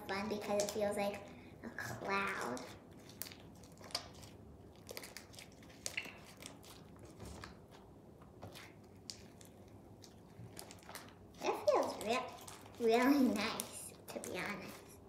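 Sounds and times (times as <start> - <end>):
slime squeezed by hand: 2.6 - 7.5.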